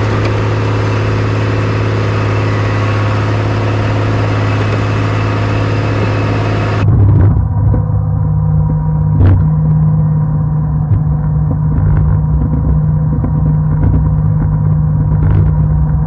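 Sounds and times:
muffled rumble: 0.0 - 16.0
snowcat engine humming: 0.0 - 16.0.

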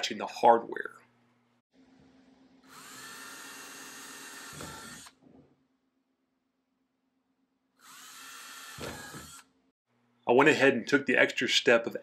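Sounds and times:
cordless drill drilling plastic: 2.7 - 5.2, 7.8 - 9.5.

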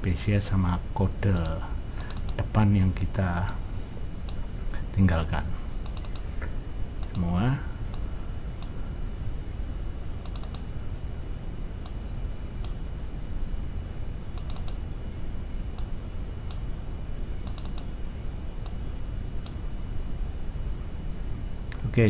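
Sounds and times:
low background rumble: 0.0 - 22.0
computer keyboard clicks: 1.4 - 2.4, 5.8 - 6.2, 10.2 - 10.7, 14.4 - 14.8, 17.4 - 17.9.

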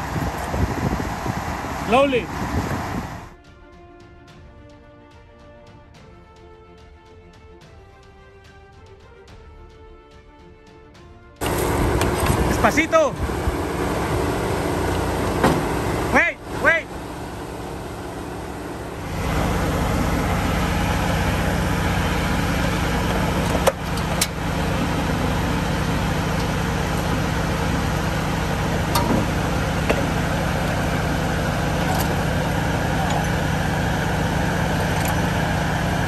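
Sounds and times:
truck engine running: 0.0 - 3.4, 11.4 - 36.0.

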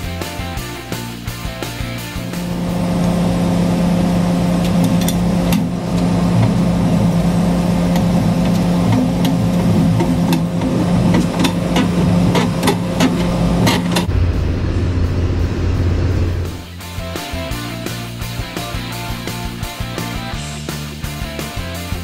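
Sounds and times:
diesel truck engine idling: 2.2 - 16.8.

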